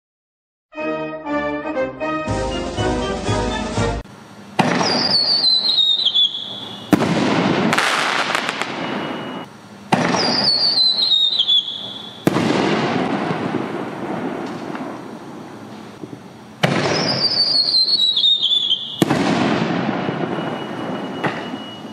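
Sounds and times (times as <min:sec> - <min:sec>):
firework shell launch report: 0:04.5 - 0:21.9
firework bang: 0:04.6 - 0:15.0, 0:16.0 - 0:18.1, 0:18.9 - 0:21.7
firework crackles: 0:04.6 - 0:21.9
firework whistle falling in pitch: 0:04.7 - 0:07.0, 0:07.7 - 0:09.5, 0:10.2 - 0:12.3, 0:16.9 - 0:21.9.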